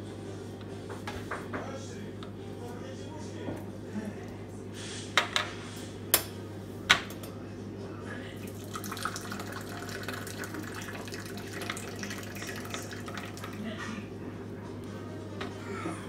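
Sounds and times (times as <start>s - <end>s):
tea pouring into glass cups: 8.4s - 13.6s.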